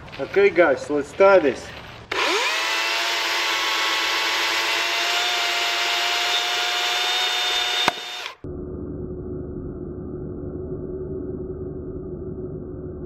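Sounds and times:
electric chainsaw whining: 2.1 - 8.4.

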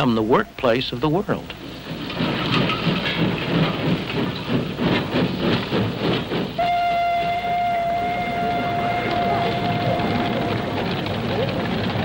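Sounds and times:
steam locomotive chuffing: 0.0 - 12.0
steam whistle: 6.6 - 11.0.

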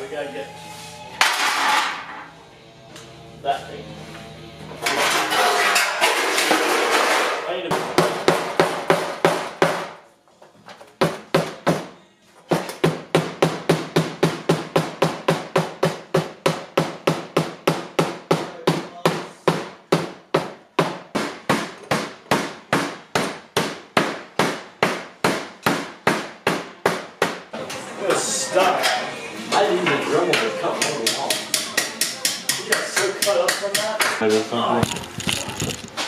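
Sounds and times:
mallet beating sheet steel: 6.5 - 10.0.

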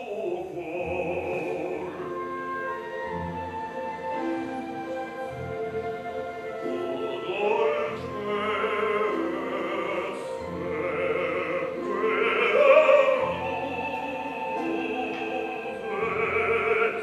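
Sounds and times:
man singing opera: 0.0 - 17.0
orchestral accompaniment: 0.0 - 17.0.

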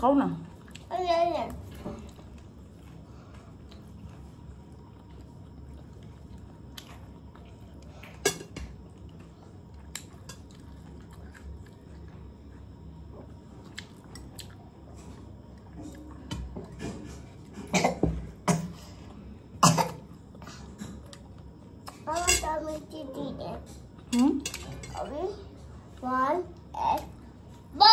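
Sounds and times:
chewing: 2.0 - 8.2, 8.8 - 17.6
forks clinking on plates: 22.2 - 22.5, 24.1 - 25.1.

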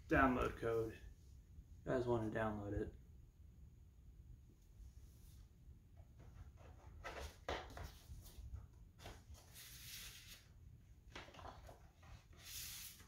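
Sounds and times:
paper and cardboard rustling: 6.2 - 13.0.

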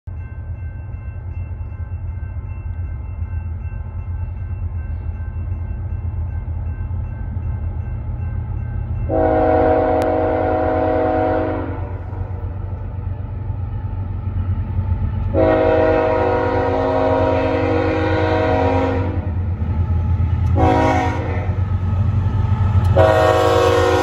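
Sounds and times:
locomotive air horn blast: 9.1 - 12.0, 15.3 - 19.3, 20.5 - 21.6, 22.9 - 24.0.

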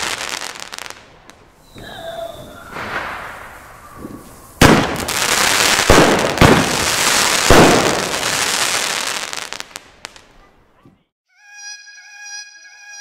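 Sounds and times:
firework crackling: 0.0 - 1.8, 2.4 - 10.3.

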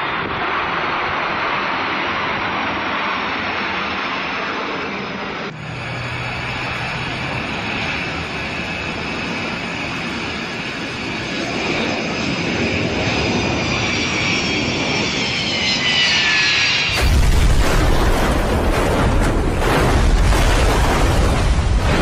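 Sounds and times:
jet engines whining: 0.0 - 22.0
airliner crashing: 12.1 - 22.0.

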